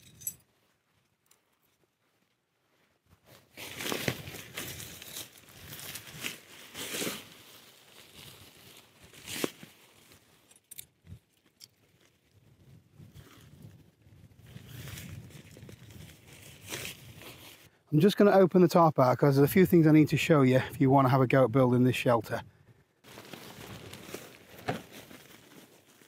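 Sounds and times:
tarp fabric rustling and crinkling: 0.5 - 10.5, 13.0 - 17.7, 23.0 - 26.0.

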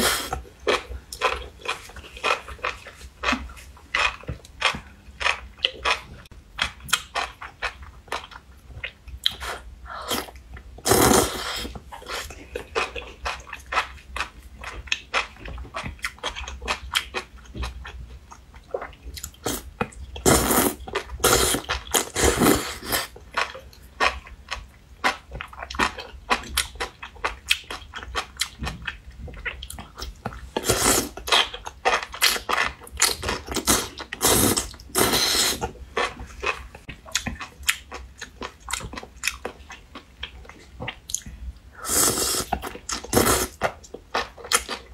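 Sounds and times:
slurping noodle strands: 10.1 - 11.7, 20.2 - 23.1, 33.6 - 35.6.

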